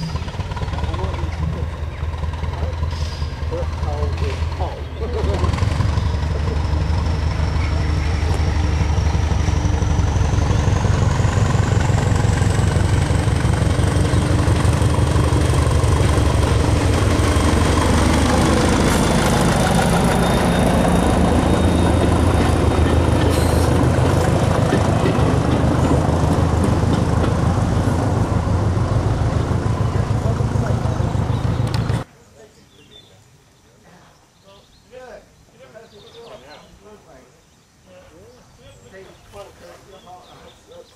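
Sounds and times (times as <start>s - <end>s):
diesel train engine throbbing: 0.0s - 32.1s.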